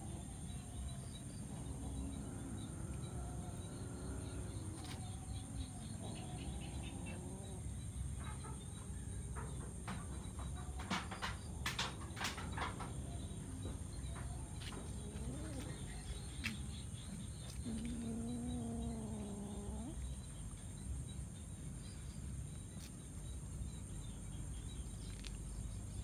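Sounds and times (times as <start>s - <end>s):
faint bird calls: 12.3s - 20.4s.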